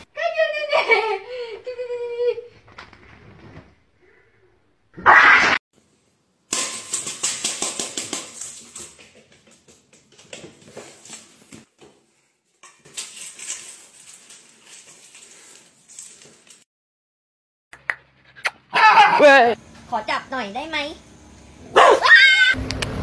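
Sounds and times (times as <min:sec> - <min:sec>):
dry cat food rattling in metal bowl: 0:06.5 - 0:09.7, 0:12.7 - 0:16.6.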